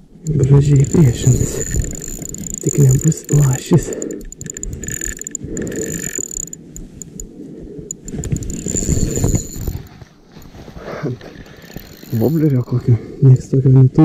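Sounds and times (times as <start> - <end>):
fishing reel whirring and clicking: 0.2 - 7.3, 7.9 - 9.9, 11.3 - 12.9.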